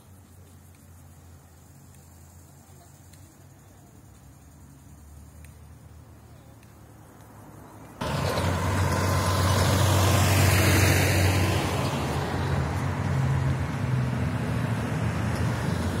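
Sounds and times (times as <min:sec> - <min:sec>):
traffic noise: 0:00.0 - 0:16.0
truck driving past: 0:08.0 - 0:16.0.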